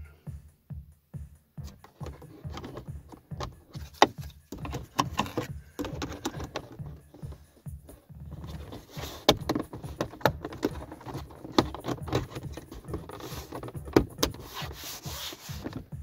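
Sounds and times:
plastic panel clicks and knocks: 1.7s - 7.4s, 8.3s - 14.4s.

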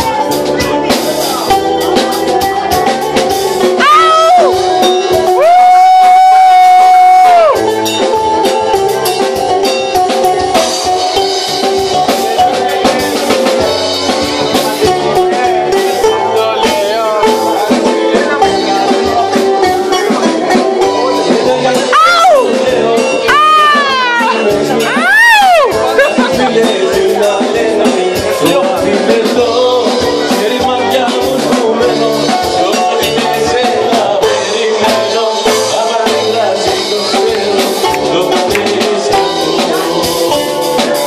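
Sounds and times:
drums: 0.0s - 41.0s
guitar: 0.0s - 41.0s
man singing into a microphone: 11.4s - 41.0s.

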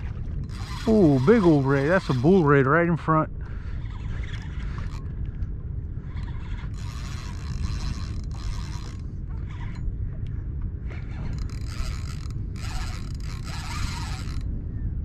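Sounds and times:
low rumble: 0.0s - 15.0s
fishing reel ratcheting whirr: 0.4s - 2.7s, 3.6s - 5.1s, 6.0s - 10.0s, 10.9s - 14.5s.

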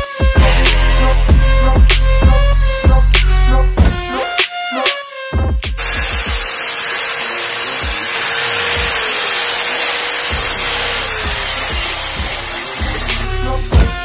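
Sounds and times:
electric mitre saw running: 5.8s - 13.8s.

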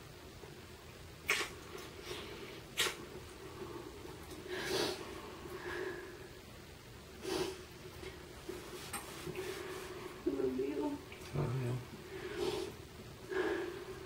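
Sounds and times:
faint steady hum: 0.0s - 14.0s
breathy kissing sounds: 1.2s - 1.9s, 2.7s - 3.0s.

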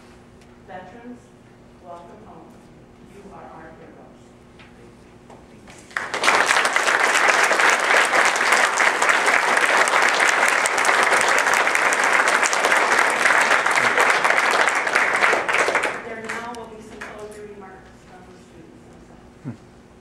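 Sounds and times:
crowd clapping: 5.8s - 17.2s.

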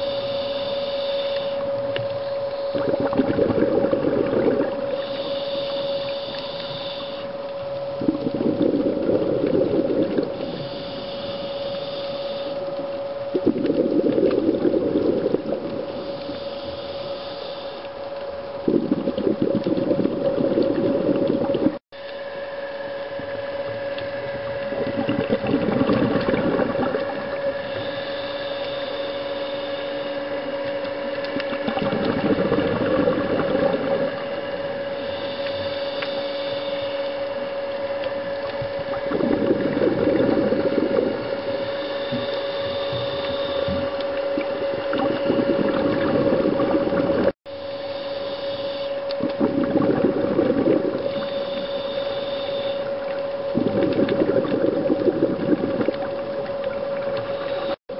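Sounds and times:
steady hum: 0.0s - 57.9s
bubbly regulator exhalations: 2.7s - 5.1s, 13.3s - 15.8s, 24.3s - 28.0s, 31.4s - 34.3s, 38.8s - 41.6s, 42.2s - 47.3s, 49.2s - 51.3s, 53.5s - 57.7s.

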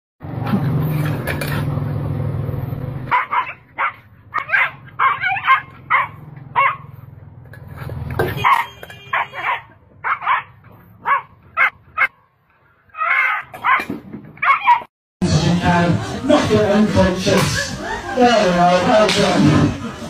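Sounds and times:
dog barking: 3.1s - 7.0s, 8.4s - 12.2s, 13.0s - 14.9s.

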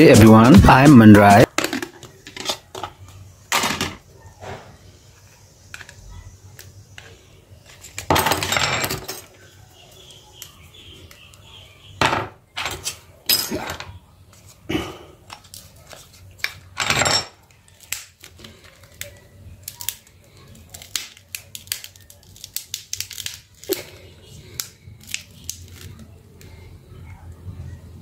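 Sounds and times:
plastic parts clacking and scraping: 1.4s - 4.0s.

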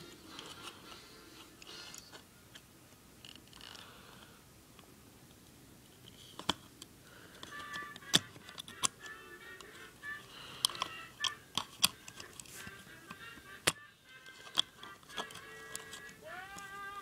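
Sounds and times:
small plastic and metal clicks: 7.4s - 9.7s, 10.6s - 12.7s, 14.4s - 16.7s.

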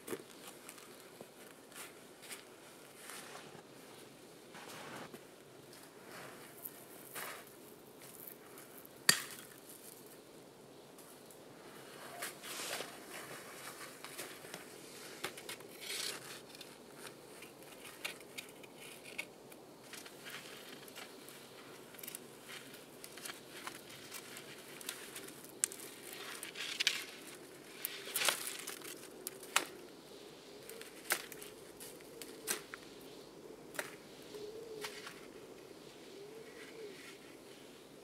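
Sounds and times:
footsteps in deep snow: 4.5s - 5.2s
knife snapping dry twigs: 27.8s - 29.8s, 30.7s - 32.8s.

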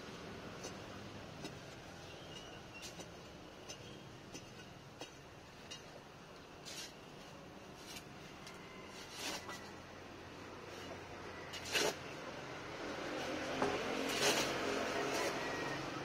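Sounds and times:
hand tools scraping gravelly soil: 6.6s - 7.0s, 7.7s - 8.1s, 8.9s - 9.6s, 10.7s - 12.1s, 13.2s - 15.8s
digging bar jabbing ground: 10.7s - 12.2s, 13.6s - 15.7s.

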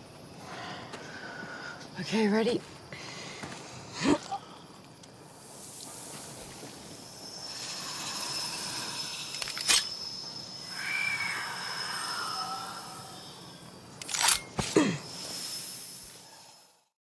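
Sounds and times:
low hiss: 3.0s - 14.0s
wavering whine: 5.0s - 14.6s
high sustained tone: 6.9s - 13.7s.

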